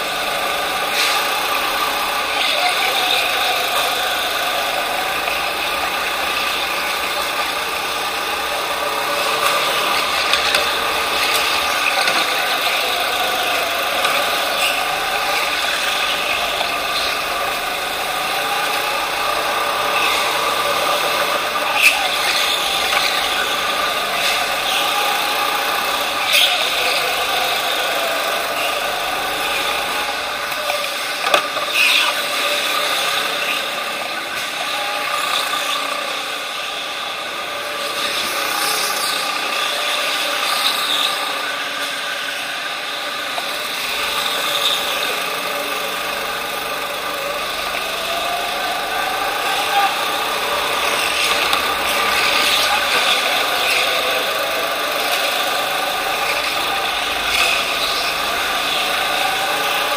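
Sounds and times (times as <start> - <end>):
go-kart motor: 0.0 - 59.9.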